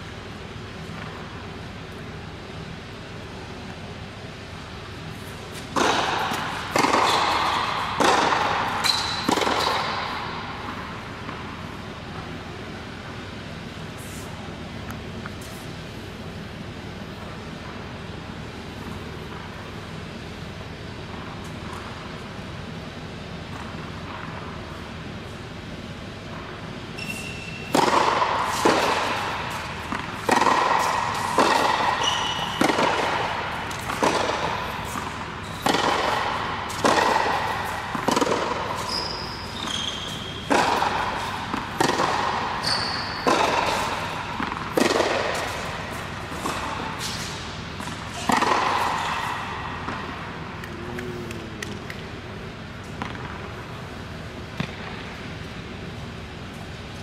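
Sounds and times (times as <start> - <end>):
tennis racket strokes: 0.7 - 12.0, 12.8 - 15.9, 27.0 - 52.0
shoes squeaking on court: 4.5 - 12.4, 26.8 - 52.0
tennis ball bounces: 5.5 - 11.6, 27.7 - 52.1, 52.8 - 53.6, 54.4 - 55.2.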